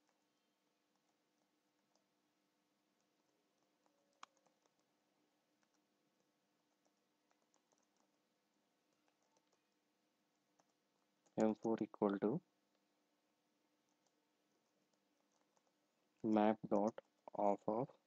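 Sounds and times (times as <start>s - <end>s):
keyboard typing clicks: 3.6s - 4.9s, 6.8s - 8.2s.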